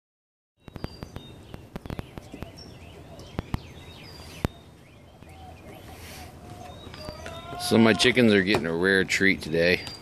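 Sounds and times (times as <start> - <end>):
high bird chirps: 0.6 - 8.0.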